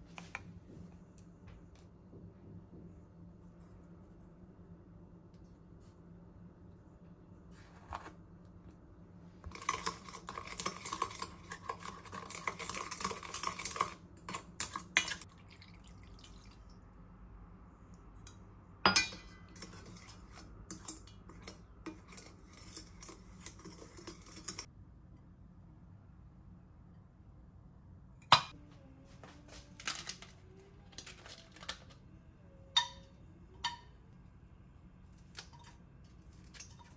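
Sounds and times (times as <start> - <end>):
metal spoon stirring in steel bowl: 9.4 - 15.3, 18.9 - 24.7, 32.7 - 34.0, 35.2 - 36.9.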